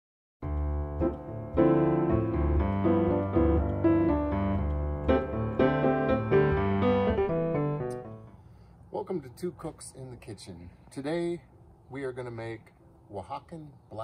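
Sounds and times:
piano chords and melody: 0.4 - 8.4.

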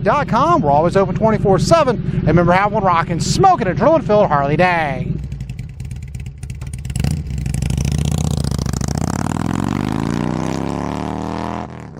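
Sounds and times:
motorcycle engine revving: 0.0 - 11.9.

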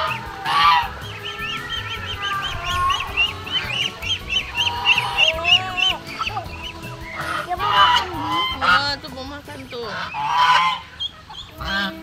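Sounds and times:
short high bird calls: 0.0 - 8.6
geese honking: 0.0 - 12.0.

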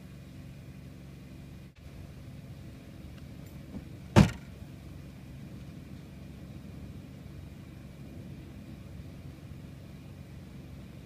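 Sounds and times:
low steady hum: 0.0 - 11.0
car trunk lid slamming: 3.7 - 4.5.

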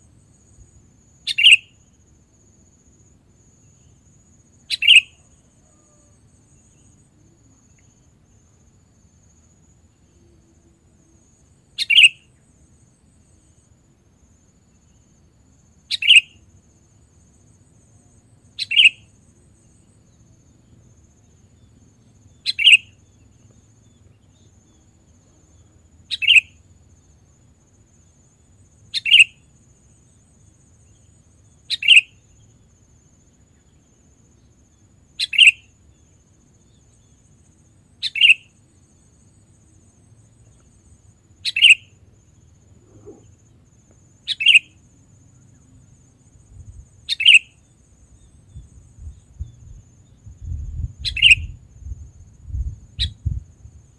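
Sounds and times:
bird call notes: 1.3 - 1.6, 4.7 - 5.2.

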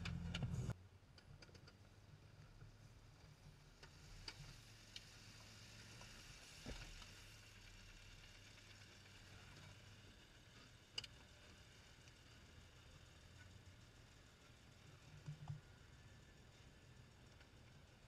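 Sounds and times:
muffled engine hum: 0.0 - 0.8.

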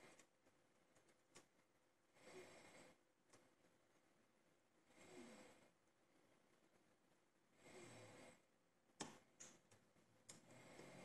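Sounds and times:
soft breath: 2.1 - 3.8, 7.5 - 8.5, 10.3 - 11.0.

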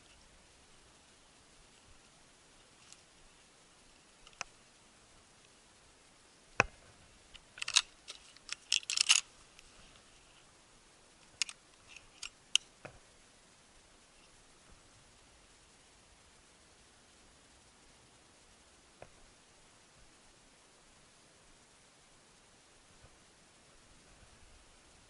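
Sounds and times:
dry grass rustling: 0.0 - 5.4, 6.6 - 10.6
handling clicks: 7.4 - 9.3.

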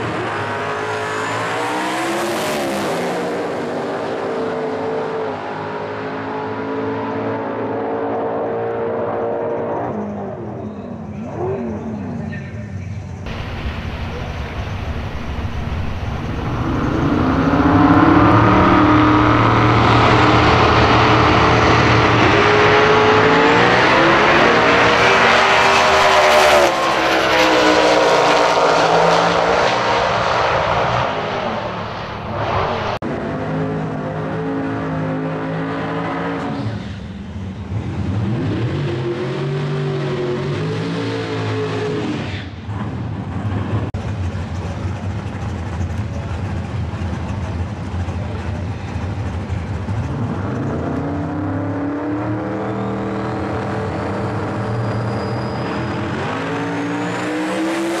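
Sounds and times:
drag car accelerating: 0.0 - 12.4, 13.2 - 58.0
engine revving hard: 15.7 - 36.6, 50.1 - 58.0.

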